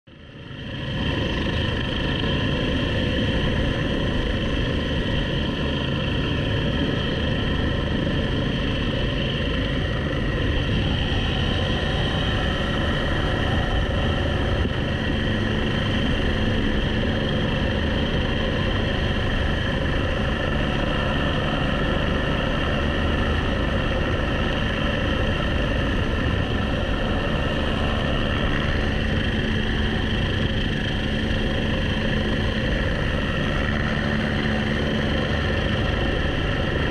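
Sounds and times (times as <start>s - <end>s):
helicopter engine and rotor: 0.1s - 36.9s.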